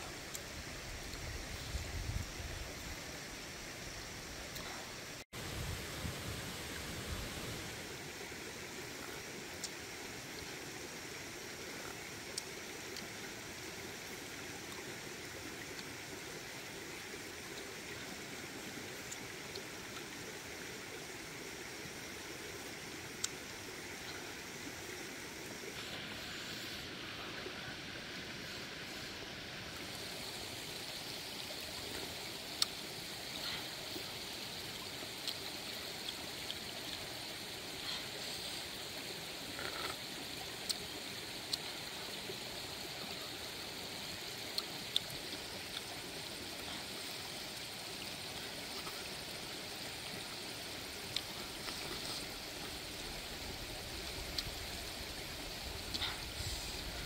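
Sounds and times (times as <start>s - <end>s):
small stream running: 0.0s - 57.0s.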